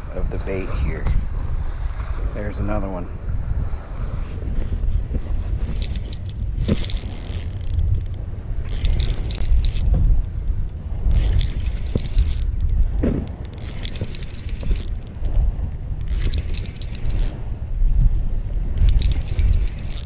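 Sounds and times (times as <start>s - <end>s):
wind rumble on microphone: 0.0s - 20.0s
fishing reel clicking: 5.4s - 17.5s, 18.7s - 20.0s.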